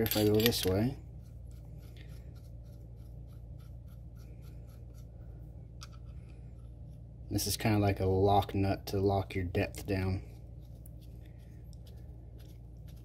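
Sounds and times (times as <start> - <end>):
small metal parts ticking and scraping: 0.0 - 1.0
steady low hum: 0.0 - 13.0.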